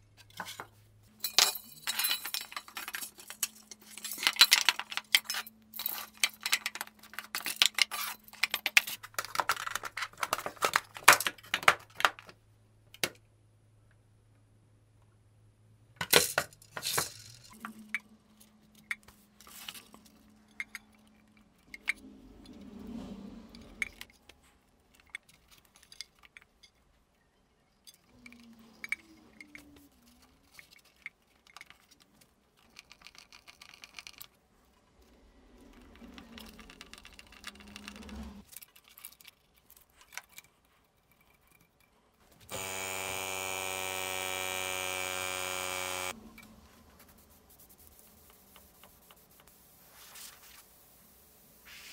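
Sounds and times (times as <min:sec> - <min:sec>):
compressor motor buzzing: 0:42.5 - 0:46.2.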